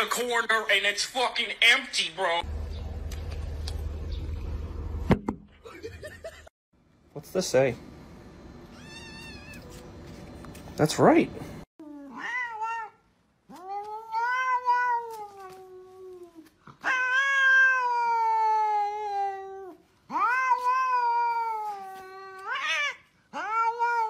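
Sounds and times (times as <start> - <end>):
cat yowling: 8.7 - 9.7, 11.9 - 24.0.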